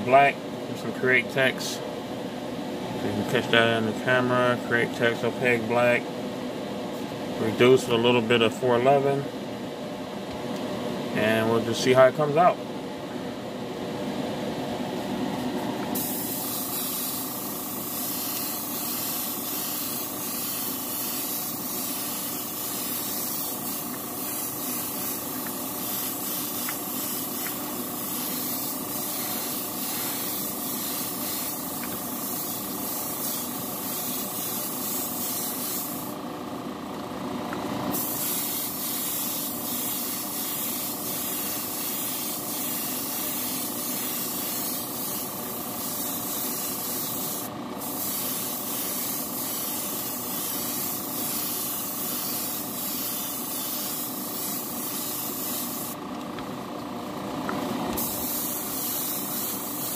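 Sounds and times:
motor hum: 12.6 - 44.0, 55.8 - 59.9
airbrush spraying hiss: 15.9 - 36.2, 37.9 - 56.0, 58.0 - 59.9.

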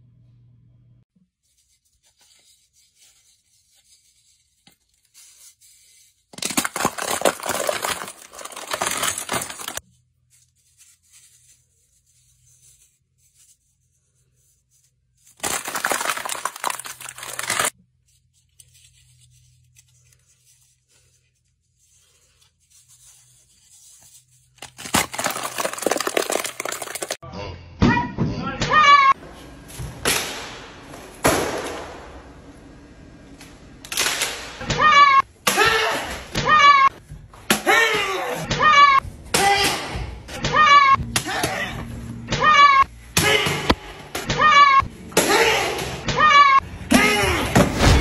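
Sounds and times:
slime shell crackling and crunching: 6.4 - 9.8, 15.4 - 17.7, 24.6 - 27.2.

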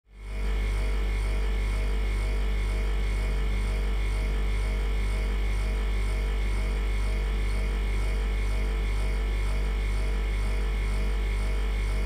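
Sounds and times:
freezer compressor humming: 0.2 - 12.0.

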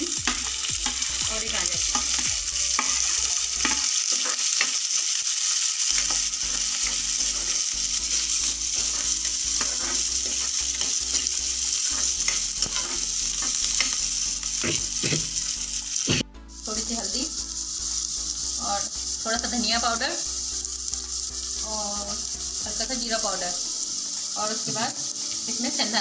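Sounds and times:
vegetables sizzling in oil: 0.0 - 26.0
spatula scraping pan: 5.9 - 15.4.

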